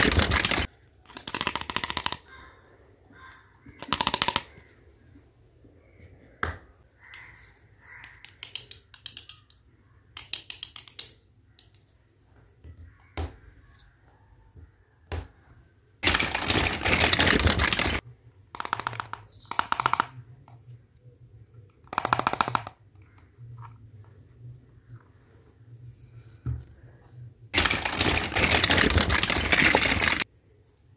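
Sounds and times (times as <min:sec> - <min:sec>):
plastic toy pieces clattering: 0:00.0 - 0:02.2, 0:16.0 - 0:18.0, 0:27.6 - 0:30.2.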